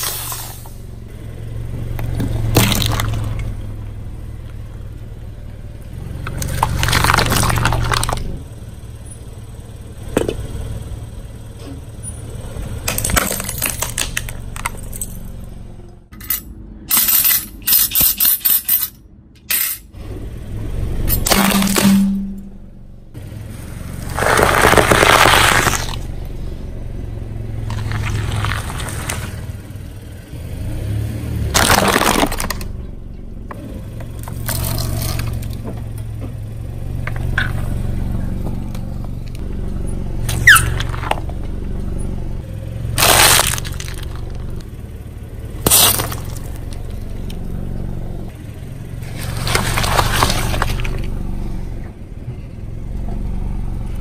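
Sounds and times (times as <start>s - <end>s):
car engine hum: 0.0s - 54.0s
tyre crushing objects: 6.4s - 8.3s, 21.2s - 22.2s, 24.0s - 26.1s, 31.5s - 32.7s, 43.0s - 44.6s, 45.6s - 46.7s, 49.0s - 51.2s
short rising squeak: 39.8s - 41.1s.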